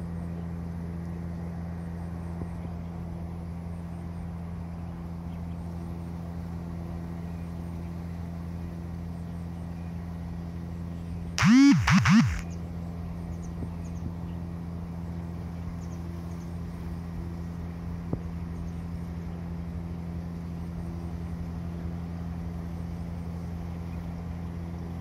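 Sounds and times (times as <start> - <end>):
low mechanical hum: 0.0 - 25.0
sharp click: 11.4 - 12.4.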